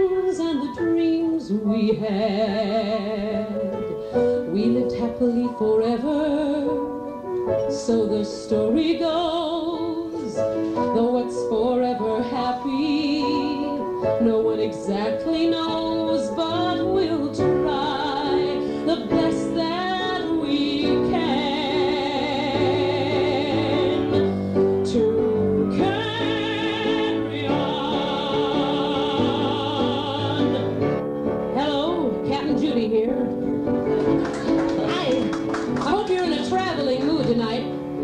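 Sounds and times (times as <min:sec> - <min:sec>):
piano accompaniment: 0:00.0 - 0:38.0
woman singing operatically: 0:04.5 - 0:06.8, 0:10.9 - 0:24.3, 0:24.9 - 0:30.7.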